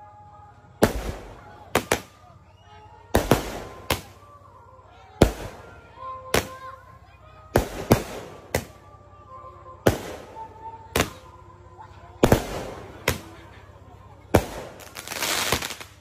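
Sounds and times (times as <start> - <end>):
crackling hiss: 0.0 - 8.9, 9.6 - 16.0
fireworks bursting with sharp bangs: 0.8 - 2.4, 3.0 - 4.3, 5.1 - 6.8, 7.5 - 8.9, 9.8 - 11.4, 12.2 - 13.6, 14.2 - 16.0.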